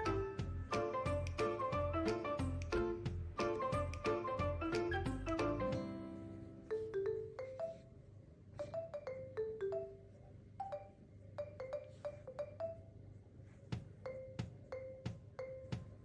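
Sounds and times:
bouncy mallet percussion tune: 0:00.0 - 0:07.9, 0:08.6 - 0:13.0, 0:14.0 - 0:16.0.

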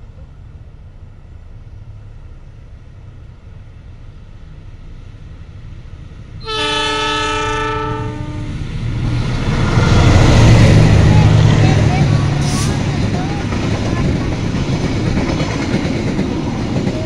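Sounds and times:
diesel locomotive rumble: 0:00.0 - 0:17.0
train rolling rush: 0:00.0 - 0:17.0
locomotive horn blast: 0:06.4 - 0:08.6.

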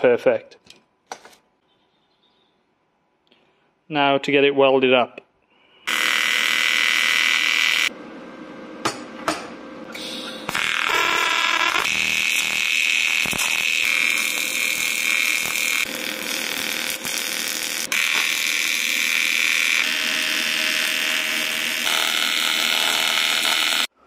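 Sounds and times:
welding arc buzzing hiss: 0:05.8 - 0:07.9, 0:10.0 - 0:24.0.

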